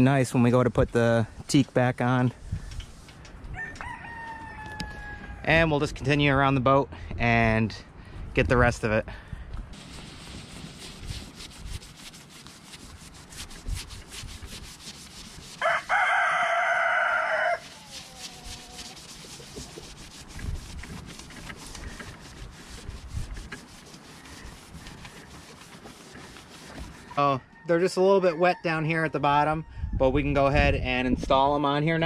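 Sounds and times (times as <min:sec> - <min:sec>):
rooster crowing: 0:03.5 - 0:05.5, 0:15.6 - 0:18.8
rag wiping boat deck: 0:09.8 - 0:16.4, 0:17.1 - 0:27.4.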